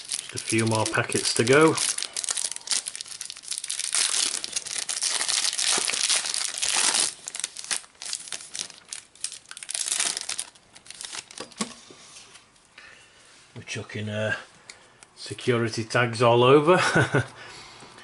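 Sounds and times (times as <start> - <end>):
plastic wrapper crinkling: 0.0 - 11.7.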